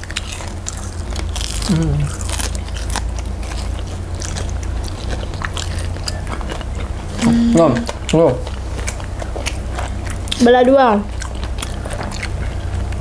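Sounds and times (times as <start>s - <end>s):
crunchy chewing of fried snacks: 0.0s - 13.0s
person humming: 1.7s - 2.1s, 7.2s - 7.9s.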